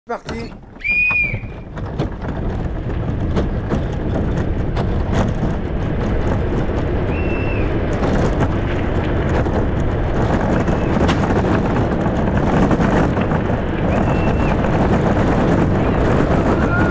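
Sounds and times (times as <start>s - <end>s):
soapbox car wheels rumbling and rattling: 0.0s - 16.9s.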